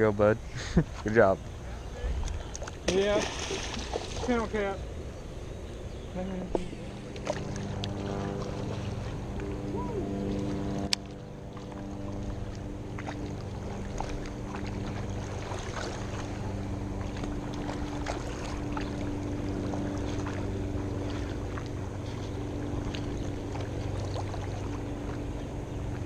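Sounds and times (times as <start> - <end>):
low steady hum: 0.0 - 26.0
fast water rushing: 2.8 - 4.8, 7.1 - 26.0.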